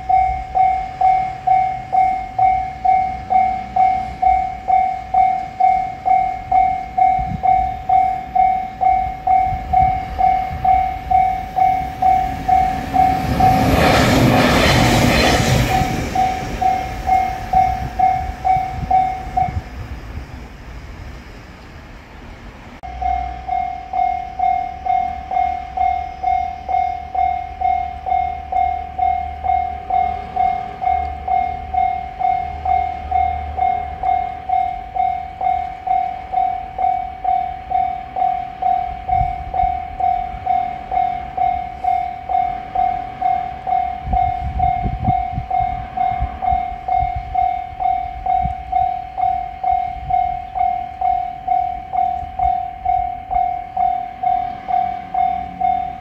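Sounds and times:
level crossing alarm bell: 0.0 - 14.5, 15.5 - 19.7, 22.8 - 56.0
low rumble: 0.0 - 21.3.

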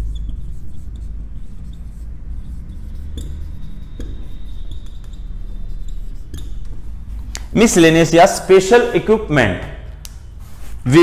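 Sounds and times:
marker squeaking on whiteboard: 0.0 - 8.7
steady low hum: 0.0 - 11.0
marker tapping on whiteboard: 3.0 - 5.2, 6.2 - 7.5.

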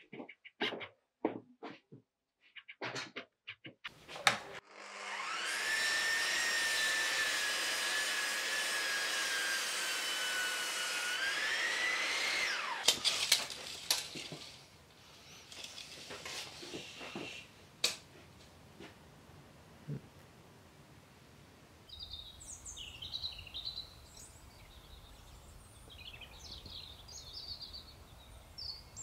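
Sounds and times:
mitre saw cutting timber: 4.2 - 14.6.

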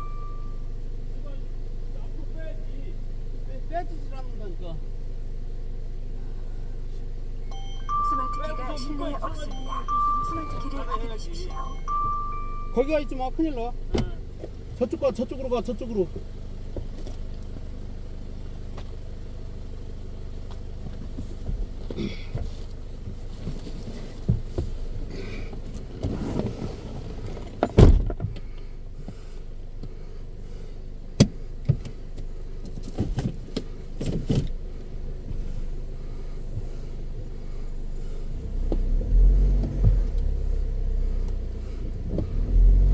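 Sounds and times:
car engine idling: 0.0 - 42.9
knocks and thuds: 27.6 - 28.4.

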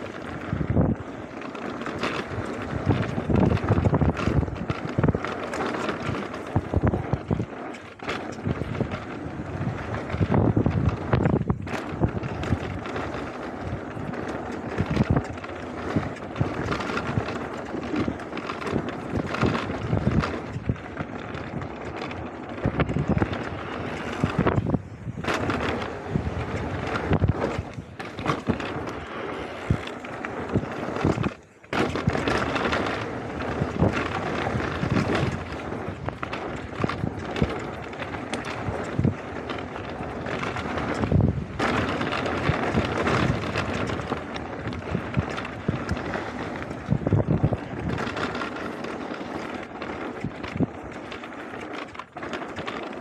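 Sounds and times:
bike clattering over bumps: 0.0 - 53.0
tyres rattling over loose stones: 0.0 - 53.0
wind buffeting microphone: 0.0 - 53.0.

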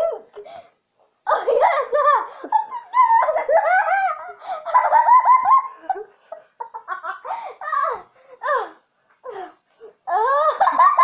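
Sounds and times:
high-pitched laughter: 1.3 - 8.7, 10.1 - 11.0.

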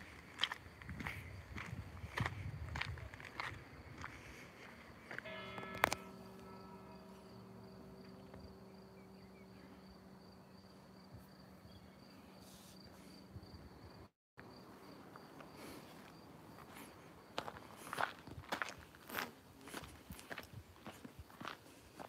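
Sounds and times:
crickets chirping: 0.0 - 22.0
low hum: 4.4 - 14.0.

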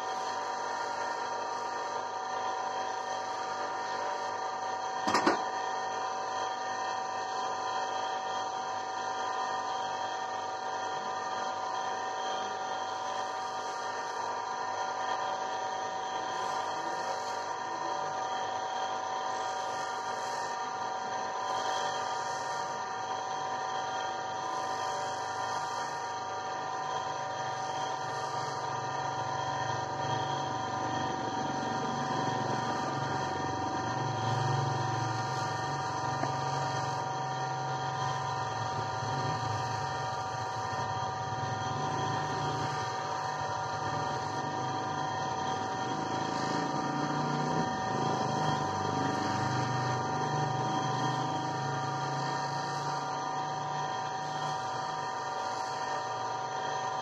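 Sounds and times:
electric motor humming: 0.0 - 57.0
stone grinding on a wheel: 18.8 - 22.8, 23.8 - 26.2, 26.9 - 29.2.

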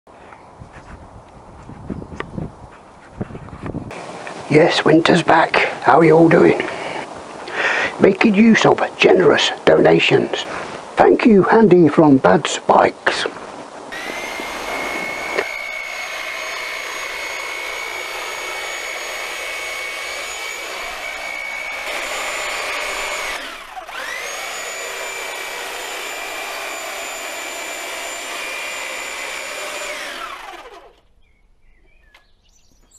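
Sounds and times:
electric hedge trimmer whining: 13.9 - 31.1.

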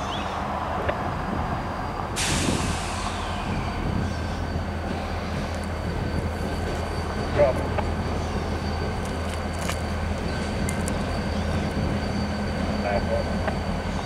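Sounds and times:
locomotive engines droning: 0.0 - 14.0
air release hiss: 2.2 - 3.6.

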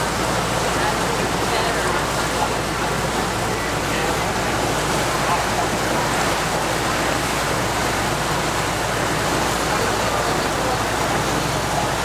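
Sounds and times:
boat engine drone: 0.0 - 12.0
water rushing along hull: 0.0 - 12.0.

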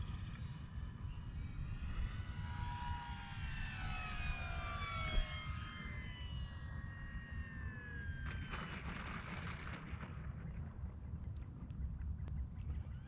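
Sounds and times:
model plane motor whining: 0.2 - 9.7
wind rumbling on microphone: 6.1 - 13.0.

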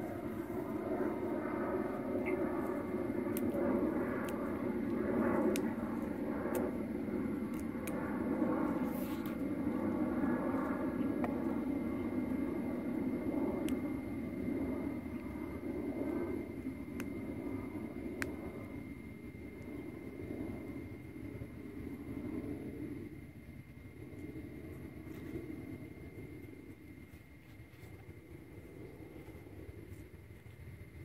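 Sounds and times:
engine drone: 0.0 - 23.1.

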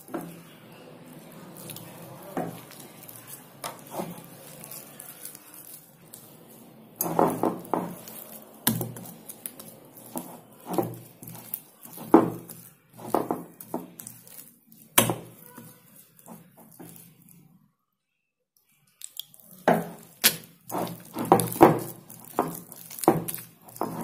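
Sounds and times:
hand squelching wet batter: 0.0 - 17.5, 19.1 - 24.0.

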